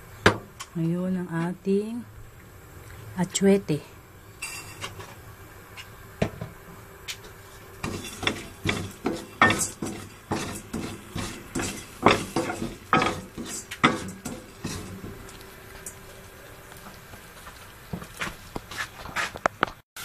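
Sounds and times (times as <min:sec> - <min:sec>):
spoon scraping a pot: 0:04.4 - 0:05.0, 0:07.8 - 0:15.2.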